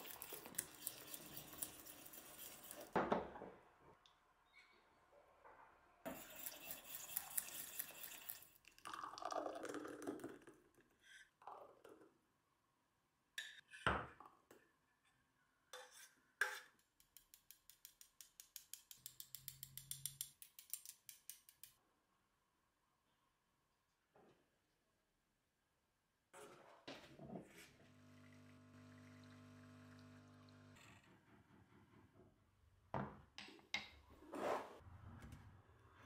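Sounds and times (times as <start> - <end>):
whisk clinking in steel saucepan: 6.1 - 8.5.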